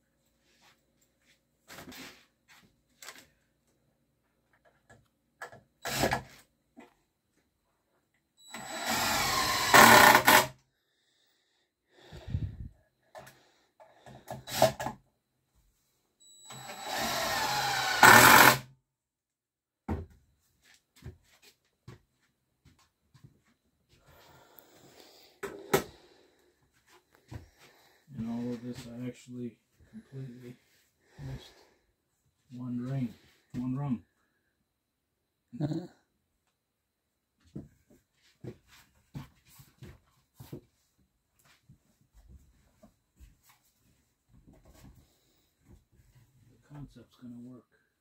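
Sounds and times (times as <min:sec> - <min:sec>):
cordless driver driving screws: 0:08.6 - 0:10.5, 0:16.5 - 0:18.6.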